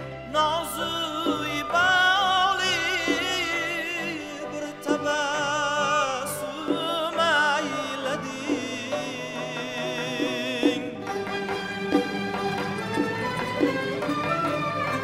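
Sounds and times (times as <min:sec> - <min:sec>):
folk orchestra with bowed strings: 0:00.0 - 0:15.0
man singing with vibrato: 0:00.2 - 0:11.4.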